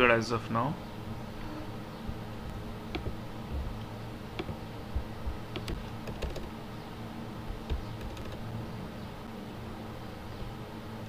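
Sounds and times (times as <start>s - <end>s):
low steady hum: 0.0s - 11.0s
keyboard keys clicking: 2.9s - 3.2s, 4.4s - 4.6s, 5.5s - 6.6s, 7.5s - 8.5s.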